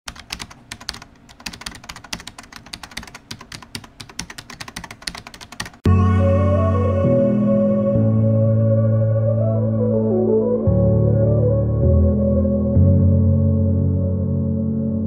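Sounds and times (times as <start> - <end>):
computer keyboard typing: 0.1 - 5.9
sustained piano or synth chords: 5.9 - 15.0.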